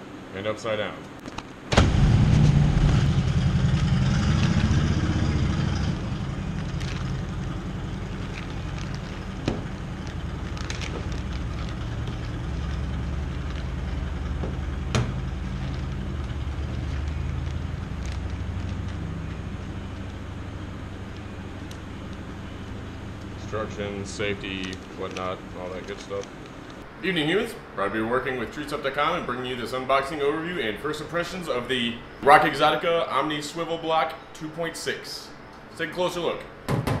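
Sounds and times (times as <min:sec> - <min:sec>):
low motor-like drone: 0:01.7 - 0:26.8
plastic bag crinkling: 0:06.5 - 0:19.0.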